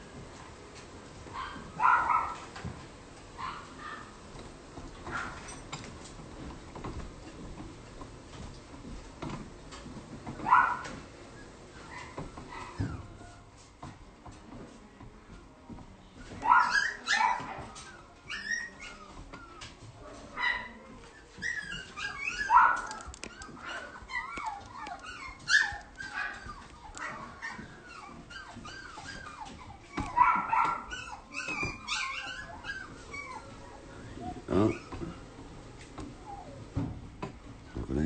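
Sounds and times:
puppy whining and yipping: 16.4s - 19.8s, 20.4s - 35.1s, 36.2s - 36.7s.

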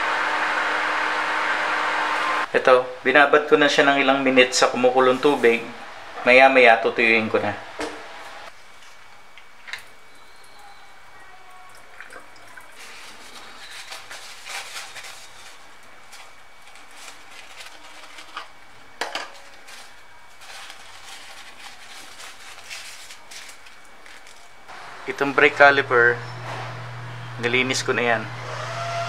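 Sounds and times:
paper towel crinkling: 12.6s - 24.7s.

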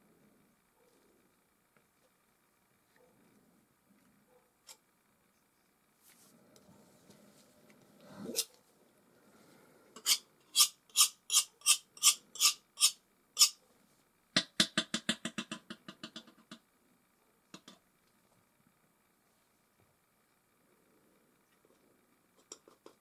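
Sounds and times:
sharp hard object taps: 14.4s - 16.6s.

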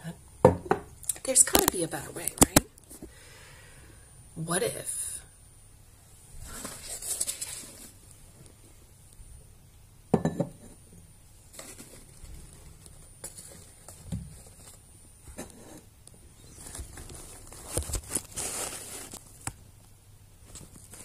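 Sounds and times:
objects tapping and bumping: 0.4s - 2.7s, 10.1s - 10.8s, 13.2s - 14.7s.

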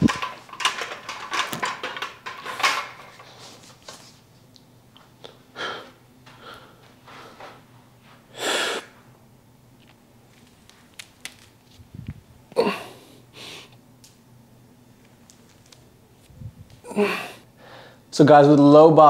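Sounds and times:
person breathing sharply: 16.9s - 18.1s.

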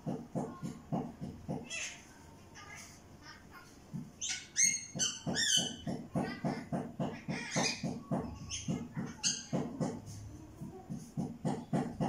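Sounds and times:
parrot clucking calls: 4.2s - 10.0s.

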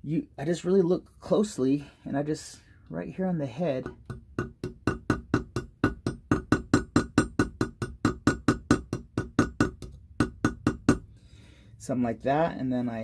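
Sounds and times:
jeweler's hammer tapping metal: 3.8s - 11.1s.

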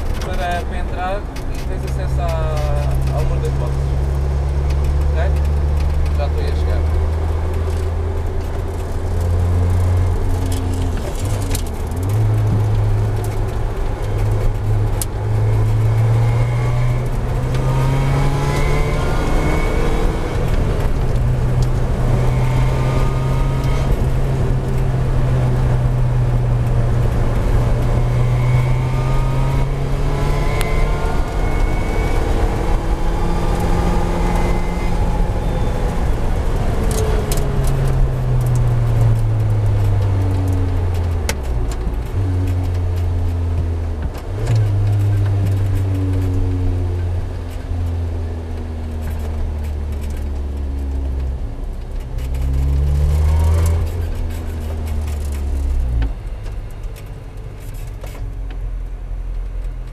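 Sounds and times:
car engine accelerating hard: 0.0s - 59.9s.

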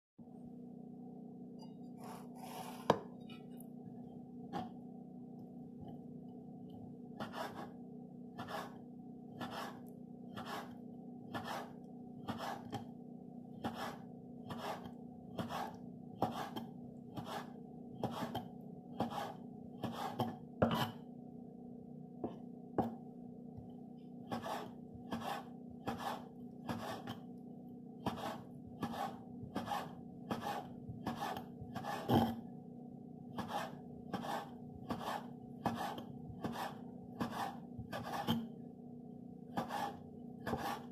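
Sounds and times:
steady low hum: 0.2s - 40.9s
knife slicing on wooden board: 2.0s - 3.1s, 7.2s - 7.8s, 8.4s - 8.8s, 9.4s - 9.8s, 10.4s - 12.9s, 13.6s - 21.0s, 24.3s - 27.2s, 28.0s - 32.4s, 33.4s - 38.4s, 39.6s - 40.9s.

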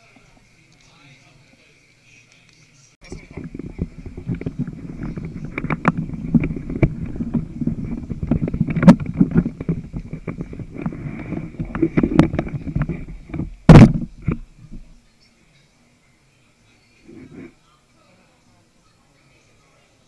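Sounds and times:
microphone handling rubbing: 3.0s - 15.0s, 17.0s - 17.6s.

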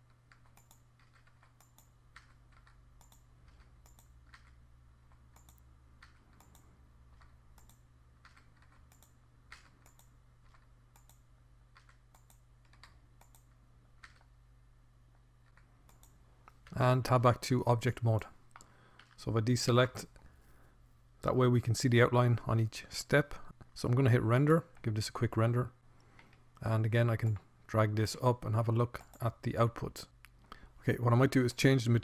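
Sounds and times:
low steady hum: 0.0s - 32.0s
keyboard key presses: 0.3s - 14.3s
mouse clicks: 0.3s - 14.3s, 15.5s - 16.7s.

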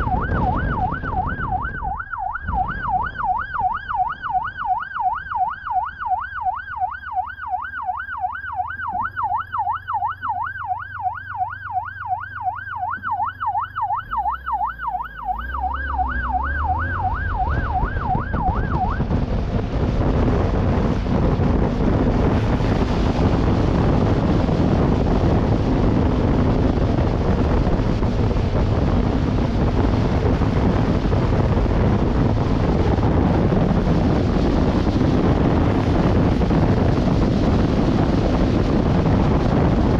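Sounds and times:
wind rush on microphone: 0.0s - 5.6s, 16.1s - 39.9s
motorcycle running at speed: 0.0s - 39.9s
siren wailing: 0.0s - 39.9s.

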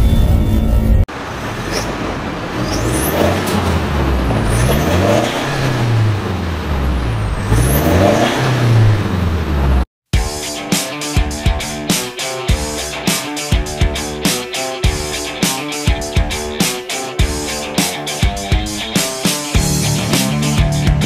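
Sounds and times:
diesel engine idling with throttle blips: 1.1s - 9.8s.

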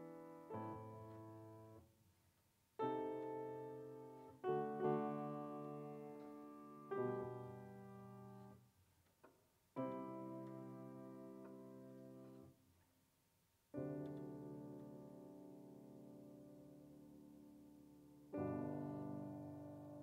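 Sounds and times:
grand piano chords: 2.8s - 8.6s, 9.8s - 12.5s, 13.8s - 20.0s.

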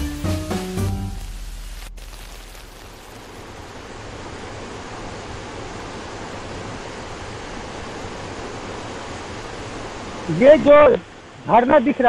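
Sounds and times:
small waterfall rushing: 0.0s - 12.0s.

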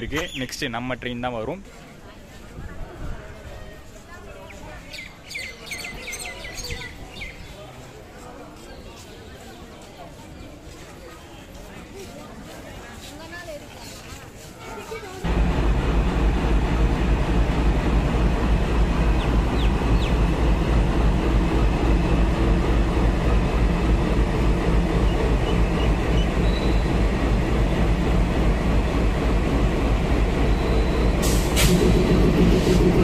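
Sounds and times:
diesel locomotive engine humming: 15.2s - 33.0s.

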